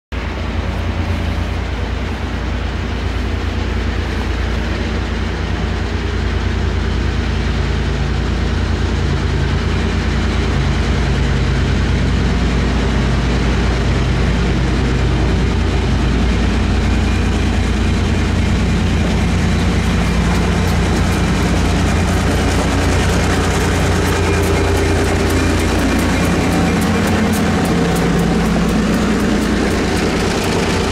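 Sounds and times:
diesel locomotive engine rumble: 0.1s - 30.9s
train wheels clicking on rails: 0.2s - 30.9s.

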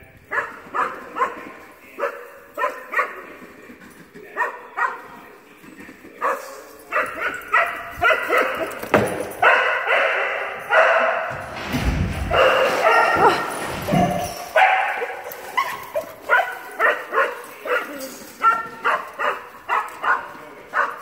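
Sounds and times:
dogs barking: 0.2s - 5.4s, 6.1s - 11.4s, 12.2s - 21.0s.

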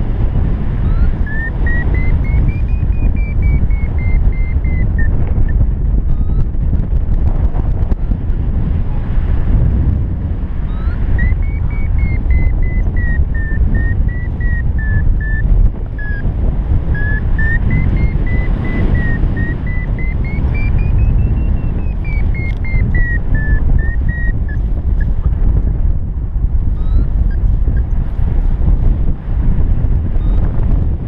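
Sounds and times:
wind rumble on microphone: 0.0s - 31.0s
variometer short beeps: 0.8s - 6.6s, 10.6s - 25.3s, 26.7s - 28.1s, 30.2s - 30.5s.

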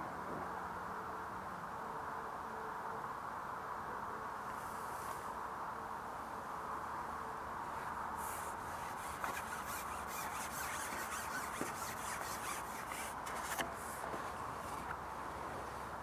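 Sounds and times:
steady background hiss: 0.0s - 16.0s
fishing pole scratchy rubbing: 8.2s - 14.9s.

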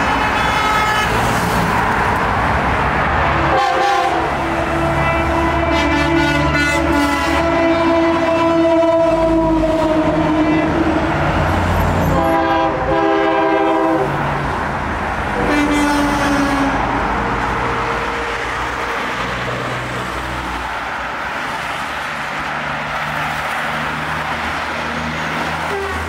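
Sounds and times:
truck air horns blowing: 0.0s - 1.4s, 3.3s - 14.2s, 15.3s - 19.2s, 25.6s - 26.0s
highway traffic noise: 0.0s - 26.0s.

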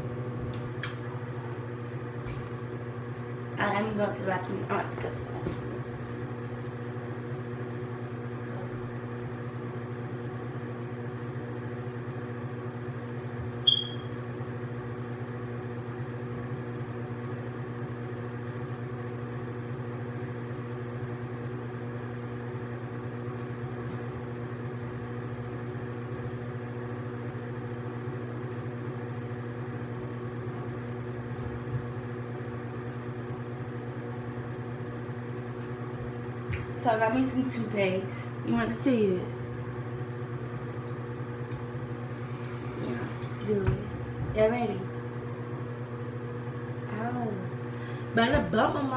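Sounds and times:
exhaust fan humming: 0.0s - 48.9s
sharp high squeak: 13.6s - 14.2s.

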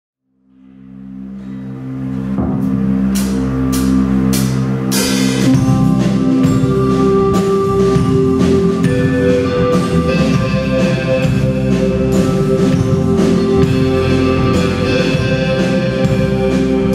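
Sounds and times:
bass guitar: 0.7s - 16.9s
keyboard chords: 0.7s - 16.9s
drums: 1.4s - 16.9s
cymbal crashes: 2.4s - 8.3s.

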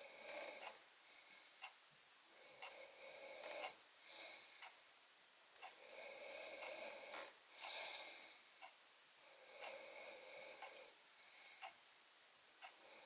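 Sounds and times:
breathing through the nose: 5.9s - 8.4s.

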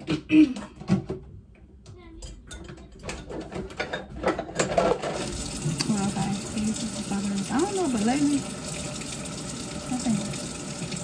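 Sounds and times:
dishes clattering: 2.2s - 6.2s
tap water running: 5.0s - 11.0s.

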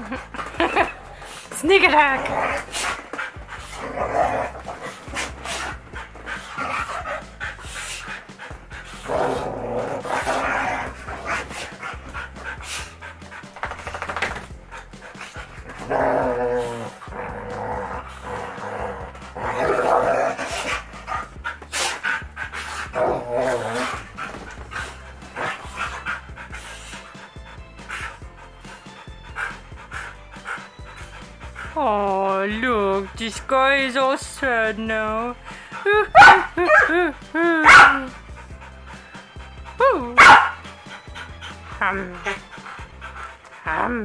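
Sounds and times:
dogs panting: 0.0s - 44.0s
dogs vocalising while play-fighting: 0.2s - 31.8s, 35.4s - 44.0s
dogs barking: 18.2s - 31.7s, 36.0s - 43.5s.

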